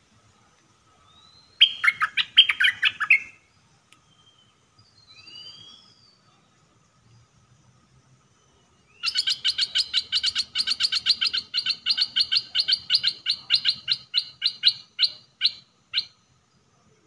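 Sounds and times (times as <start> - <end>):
bulbul chattering song: 1.1 - 3.5, 8.6 - 16.5.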